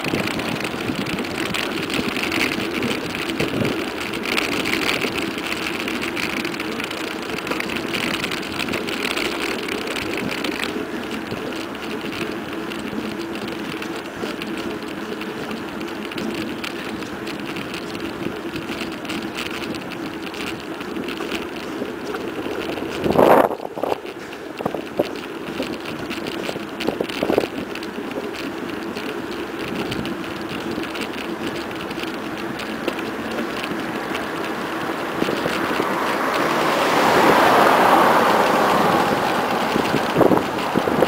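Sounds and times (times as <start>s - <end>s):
wind on microphone: 0.0s - 4.8s, 21.8s - 24.0s, 29.6s - 41.0s
bike tyre hum on asphalt: 0.0s - 41.0s.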